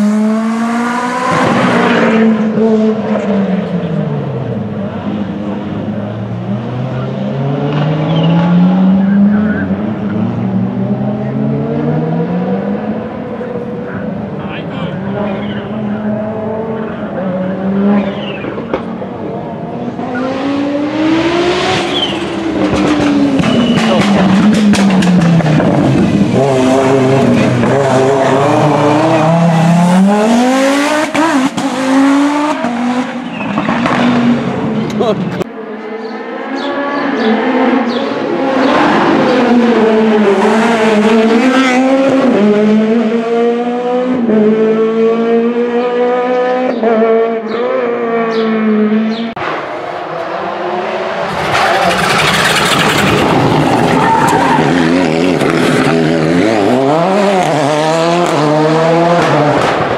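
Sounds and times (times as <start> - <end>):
car accelerating hard: 0.0 - 59.9
rally car engine at full throttle: 0.0 - 59.9.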